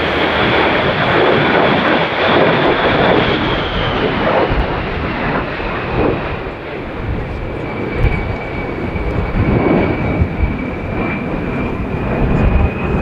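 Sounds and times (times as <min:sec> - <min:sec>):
high fan whine: 0:00.0 - 0:04.6
jet engine roar: 0:00.0 - 0:13.0.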